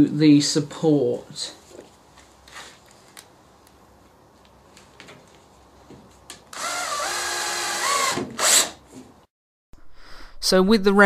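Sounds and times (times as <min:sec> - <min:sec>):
drill motor whining: 0:06.5 - 0:08.7.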